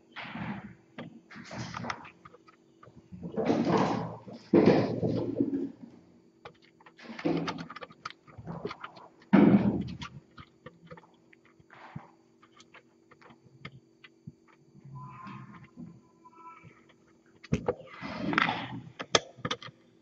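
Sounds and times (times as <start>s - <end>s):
kittens landing with dull thumps: 3.2s - 5.8s
kittens claws ticking and scraping: 6.4s - 15.8s.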